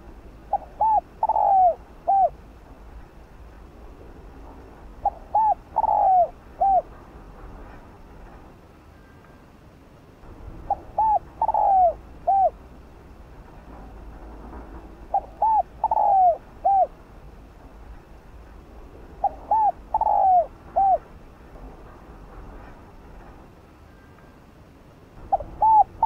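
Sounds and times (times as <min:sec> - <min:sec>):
dove cooing: 0:00.4 - 0:02.4, 0:05.0 - 0:06.9, 0:10.6 - 0:12.6, 0:15.1 - 0:17.0, 0:19.2 - 0:21.1, 0:25.2 - 0:26.0.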